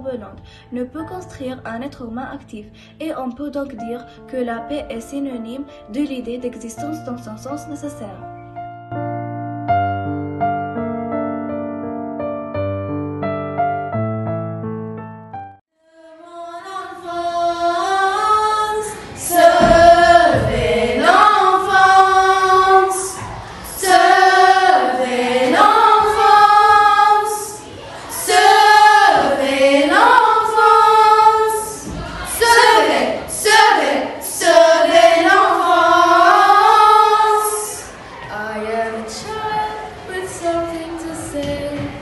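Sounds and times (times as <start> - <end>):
piano note: 7.0 - 15.6
girls singing together: 15.8 - 42.0.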